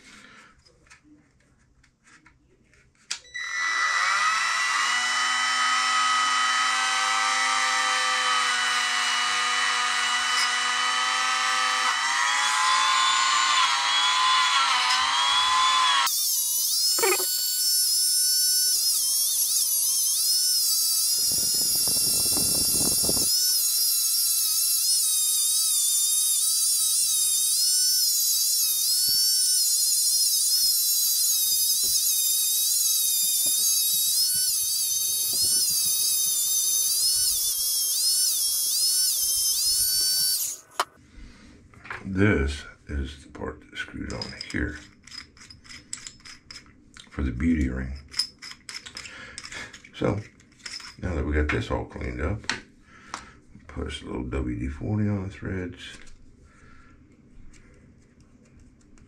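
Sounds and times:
rotary tool whining: 0:03.1 - 0:41.0, 0:48.1 - 0:51.1
bit grinding metal: 0:13.6 - 0:41.0.

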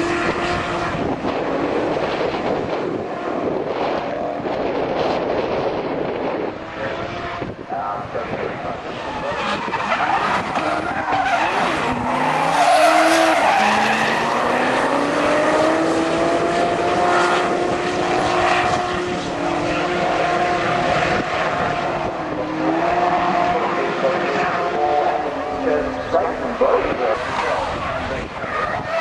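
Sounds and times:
car engines revving high: 0:00.0 - 0:29.0
tyres skidding: 0:06.5 - 0:29.0.

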